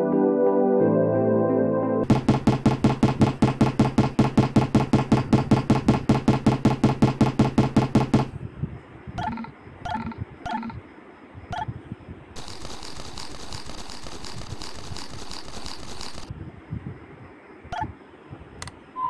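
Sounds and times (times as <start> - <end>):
short electronic blips: 9.2 - 10.8
crackly rustling hiss: 10.9 - 18.8.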